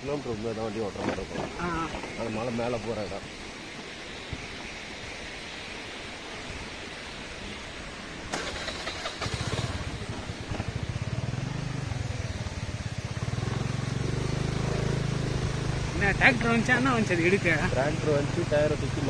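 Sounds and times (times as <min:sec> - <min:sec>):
vehicle engine running: 0:08.4 - 0:19.0.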